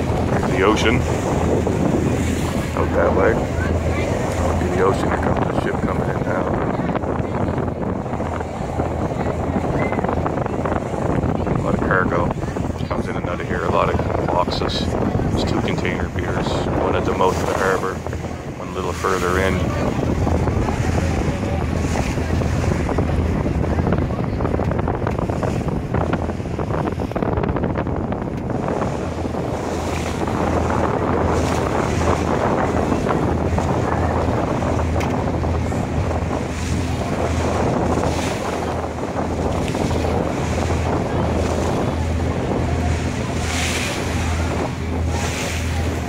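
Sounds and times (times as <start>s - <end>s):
ferry engine hum: 0.0s - 46.0s
water rushing along hull: 0.0s - 46.0s
wind buffeting microphone: 0.0s - 46.0s.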